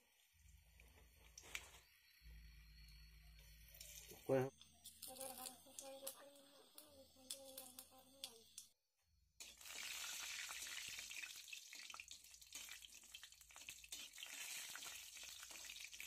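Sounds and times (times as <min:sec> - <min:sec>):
hot oil sizzling and crackling: 0:03.8 - 0:08.7, 0:09.4 - 0:16.0
spatula stirring: 0:13.6 - 0:14.9.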